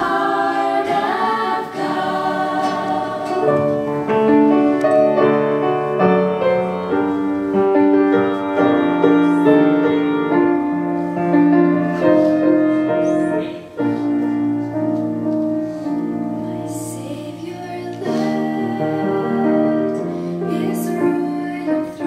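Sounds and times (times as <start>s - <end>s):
grand piano playing a hymn: 0.0s - 22.0s.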